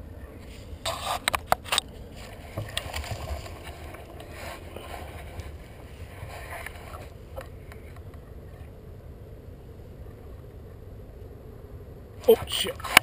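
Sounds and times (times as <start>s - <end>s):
rustling of grass and clothing: 0.3s - 8.2s.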